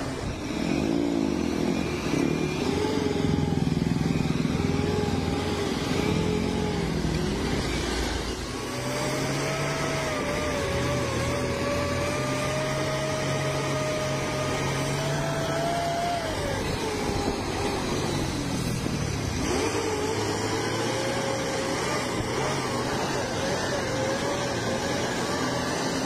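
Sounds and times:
bus engine whine: 0:00.0 - 0:26.0
road and wind noise: 0:00.0 - 0:26.0.

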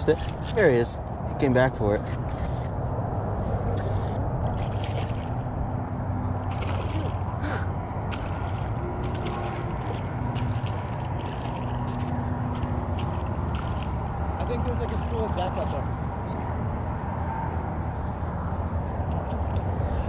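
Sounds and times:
water sloshing and lapping: 0:00.0 - 0:16.2
small splashes: 0:04.5 - 0:05.5, 0:06.4 - 0:15.5.

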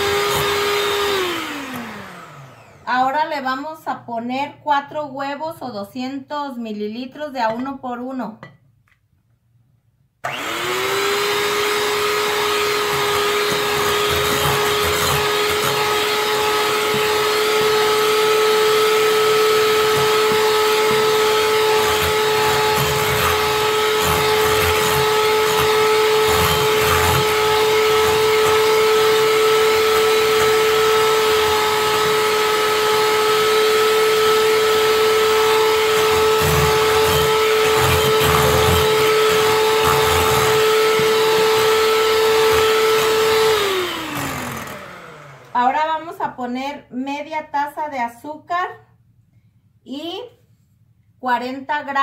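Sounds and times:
electric hand mixer whining: 0:00.0 - 0:03.6, 0:10.2 - 0:46.3.

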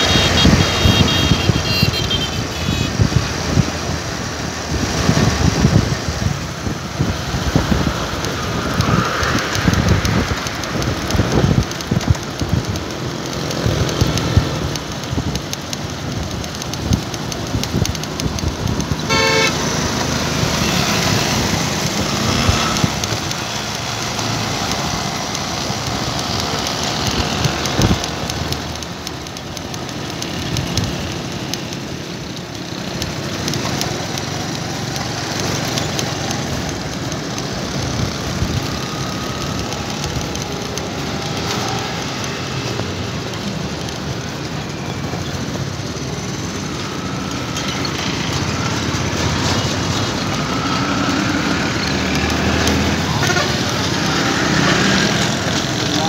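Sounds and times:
wind rushing over microphone: 0:00.0 - 0:31.6
vehicle engine and road noise: 0:00.0 - 0:56.0.

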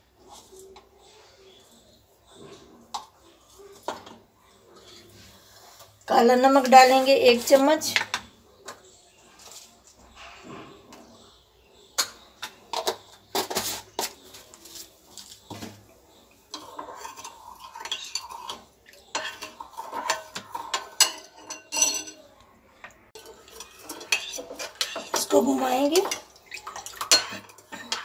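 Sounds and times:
spoon clinking against glass bowl: 0:16.5 - 0:22.2, 0:23.2 - 0:28.0
spoon clinking on metal tin: 0:16.5 - 0:22.2, 0:23.2 - 0:28.0.

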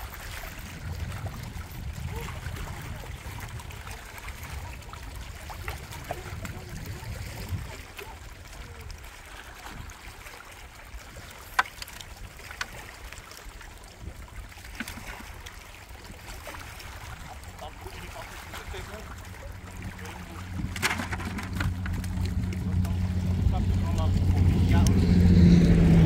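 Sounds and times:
small waves lapping on rocks: 0:00.0 - 0:26.0
low rumble: 0:19.1 - 0:26.0.

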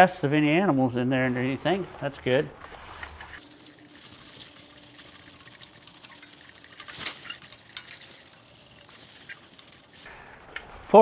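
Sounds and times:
wire brush scrubbing metal: 0:03.2 - 0:10.1.

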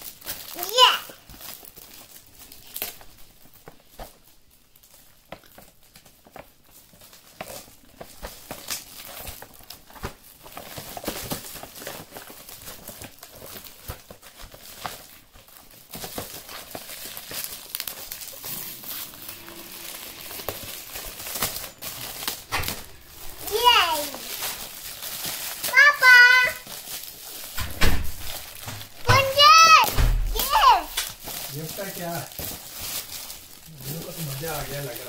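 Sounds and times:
foil gift wrap crinkling and tearing: 0:00.0 - 0:35.0.

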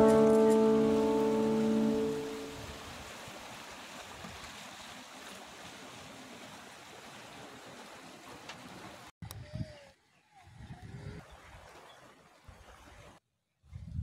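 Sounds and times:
held music note: 0:00.0 - 0:02.8.

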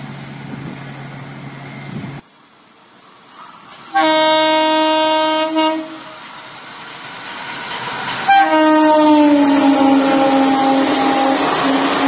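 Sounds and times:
train rumble: 0:00.0 - 0:12.0
train horn blasts: 0:03.9 - 0:06.3, 0:08.3 - 0:12.0.

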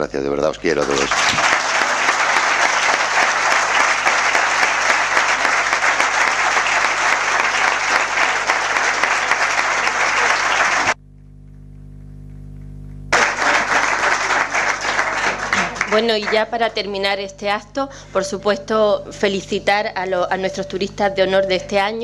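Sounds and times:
audience applauding: 0:00.6 - 0:11.0, 0:13.1 - 0:17.0.

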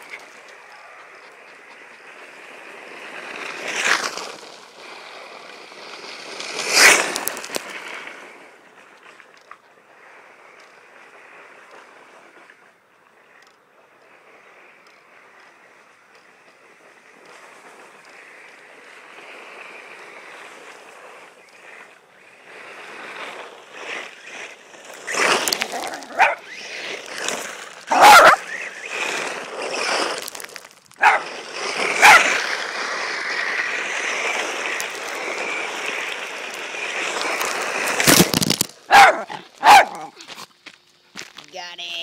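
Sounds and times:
rc buggy driving on gravel: 0:00.0 - 0:42.0
dog barking: 0:26.1 - 0:26.4, 0:27.9 - 0:28.4, 0:31.0 - 0:31.3, 0:32.0 - 0:32.3, 0:38.9 - 0:40.1.

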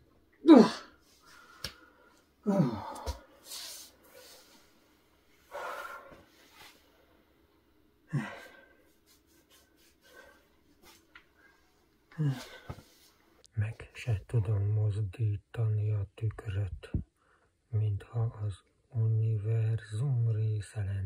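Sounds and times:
person grunting and gasping: 0:00.4 - 0:01.0, 0:02.4 - 0:03.3, 0:08.1 - 0:08.7, 0:12.2 - 0:12.8.

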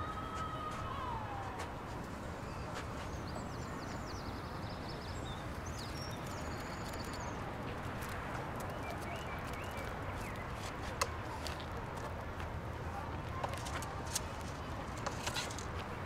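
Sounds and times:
low city rumble: 0:00.0 - 0:16.0
birds twittering: 0:02.4 - 0:07.5, 0:08.5 - 0:10.6.

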